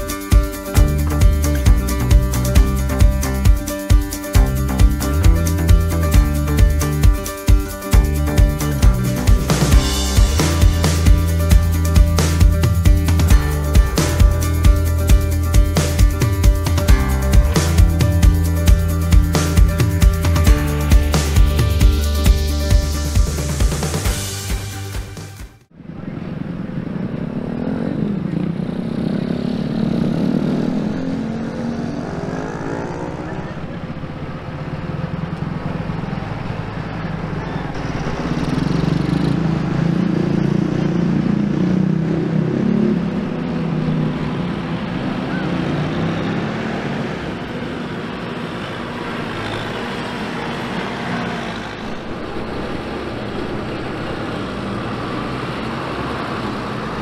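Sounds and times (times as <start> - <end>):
tractor diesel engines droning: 25.7 - 57.0.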